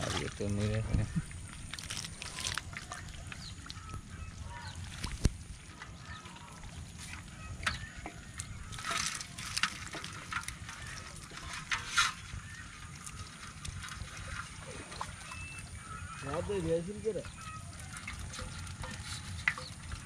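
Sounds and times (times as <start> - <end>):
animal calls: 0.0 - 5.2, 14.5 - 20.0
fish flapping and splashing: 0.0 - 20.0
water sloshing: 0.0 - 20.0.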